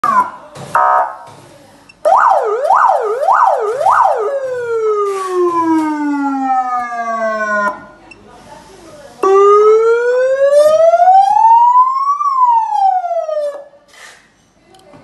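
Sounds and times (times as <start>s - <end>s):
electronic police siren: 2.1s - 7.8s, 9.2s - 13.7s.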